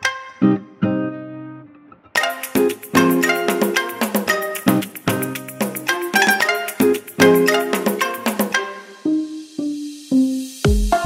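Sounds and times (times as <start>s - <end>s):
instrumental music with struck notes: 2.2s - 11.0s.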